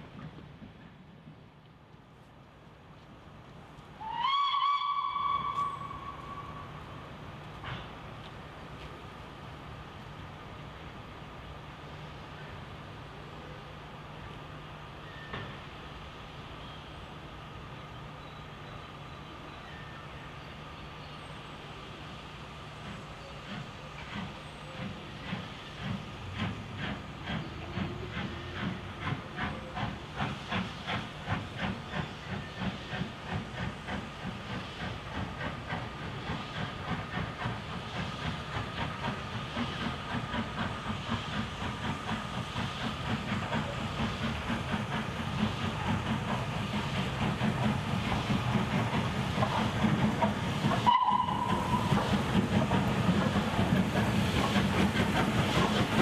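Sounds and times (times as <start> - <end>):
locomotive whistle: 4.0 - 6.8, 50.7 - 52.1
steam locomotive chuffing: 9.3 - 56.0
steam hissing: 21.3 - 56.0.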